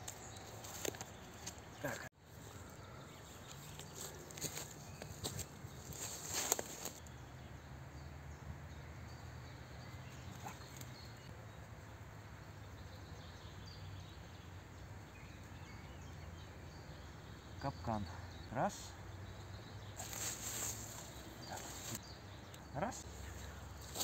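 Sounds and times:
small rustle: 0.0 - 7.0, 20.0 - 22.0, 23.1 - 24.0
footsteps in dry leaves: 3.2 - 7.0, 20.0 - 22.0, 23.1 - 24.0.

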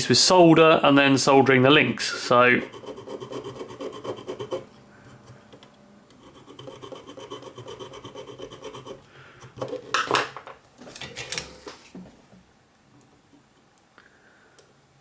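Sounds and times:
metal file rasping on wire: 2.6 - 5.4, 6.1 - 9.9
handling noise: 9.6 - 12.4.

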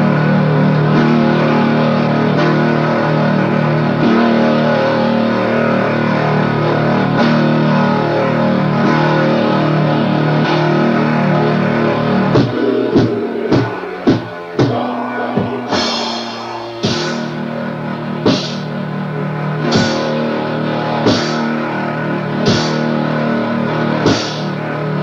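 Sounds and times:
distorted electric guitar chords: 0.0 - 25.0
heavy accented hits with drums: 12.2 - 17.6, 18.2 - 18.7, 19.6 - 20.2, 21.0 - 21.6, 22.3 - 23.0, 23.9 - 24.6.

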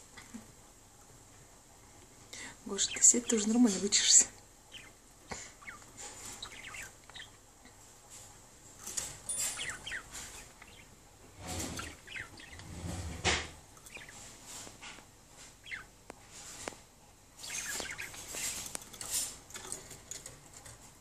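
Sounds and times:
budgerigars chirping: 2.8 - 7.4, 9.4 - 12.8, 13.8 - 14.3, 15.6 - 15.9, 17.4 - 19.2
rustling: 7.8 - 21.0.

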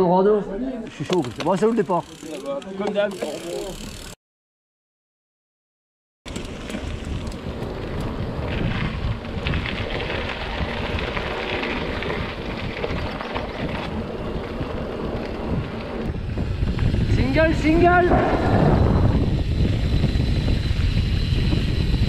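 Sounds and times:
bike rattles: 0.9 - 4.2, 6.3 - 22.0
bike rumble: 0.9 - 4.2, 6.3 - 22.0
wind buffeting microphone: 6.3 - 22.0.

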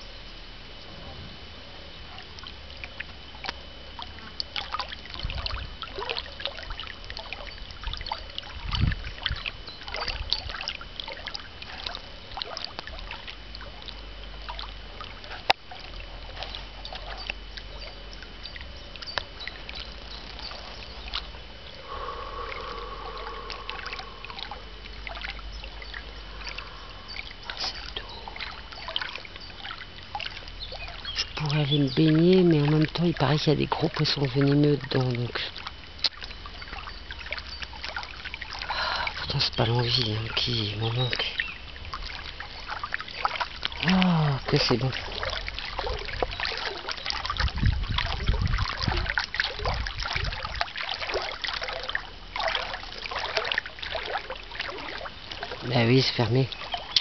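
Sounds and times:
wind rumbling on microphone: 0.0 - 34.0, 35.7 - 53.0
faint steady high tone: 16.1 - 47.3.

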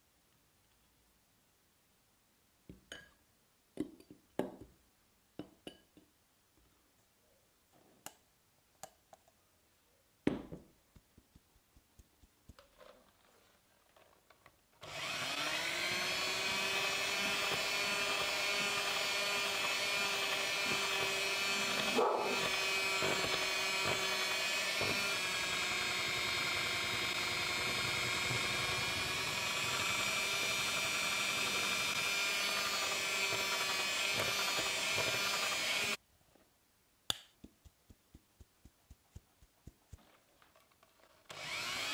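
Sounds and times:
electric hand mixer running: 14.8 - 36.0, 41.3 - 41.9.

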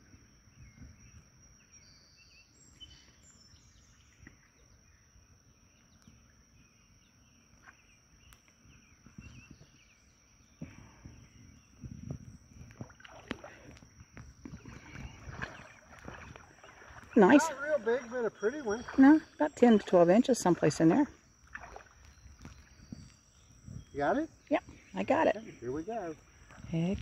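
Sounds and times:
faint bird chirps: 0.0 - 27.0
creek water splashing: 12.6 - 27.0.

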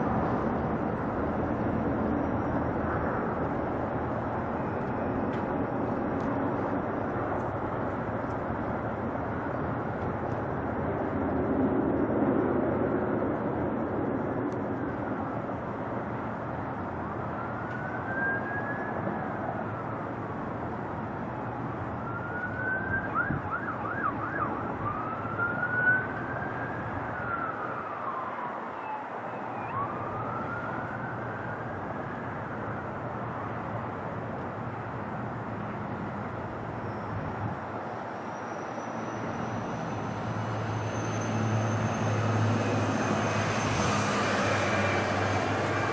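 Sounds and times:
jet airliner engine noise: 0.0 - 45.9
emergency vehicle siren wailing: 16.2 - 20.6, 21.2 - 34.3, 35.9 - 45.9.

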